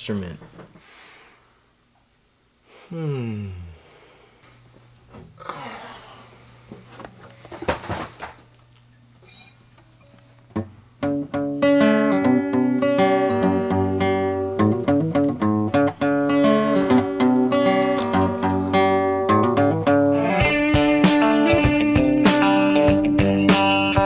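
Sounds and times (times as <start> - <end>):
acoustic guitar picking: 9.2 - 24.0.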